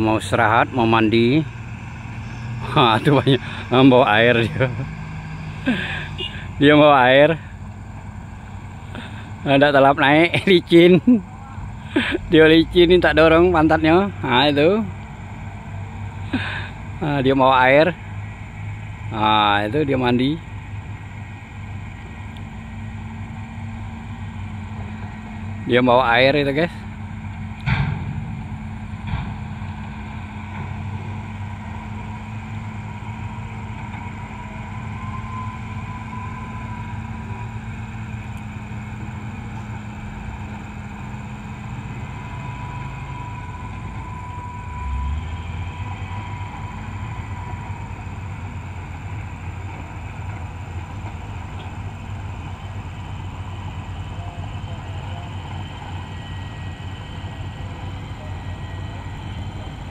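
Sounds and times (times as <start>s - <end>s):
heavy diesel machinery rumbling: 0.0s - 59.9s
low thud: 27.6s - 29.6s.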